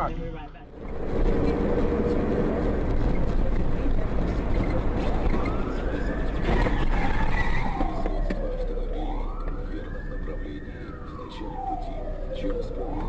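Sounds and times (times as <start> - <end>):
car engine and road rumble: 0.0 - 13.0
siren wailing: 4.2 - 13.0.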